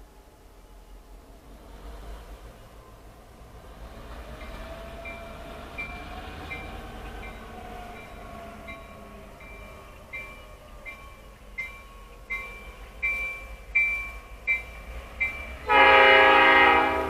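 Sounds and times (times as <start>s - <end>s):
diesel locomotives rumbling: 0.0s - 17.0s
railroad bell ringing: 4.2s - 17.0s.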